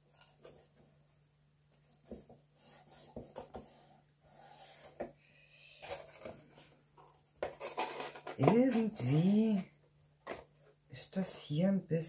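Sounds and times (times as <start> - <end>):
hands rubbing cardboard: 2.0 - 5.1.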